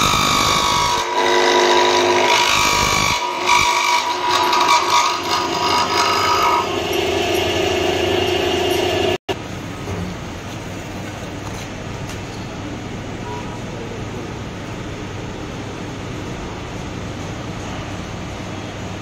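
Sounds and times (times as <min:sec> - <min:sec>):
drilling machine cutting wood: 0:00.0 - 0:09.2.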